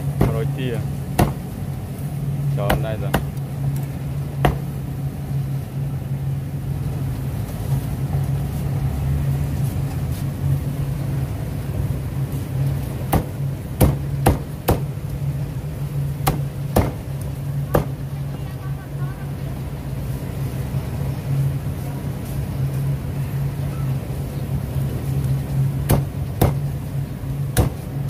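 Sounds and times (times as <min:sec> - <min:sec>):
steady low hum: 0:00.0 - 0:28.0
meat cleaver chopping: 0:01.2 - 0:01.4, 0:13.1 - 0:14.9, 0:16.2 - 0:17.0.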